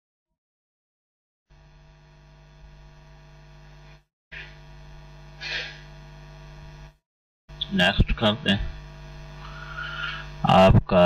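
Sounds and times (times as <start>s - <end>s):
electrical hum: 1.5s - 11.0s
short breath: 5.4s - 5.9s, 9.4s - 10.4s.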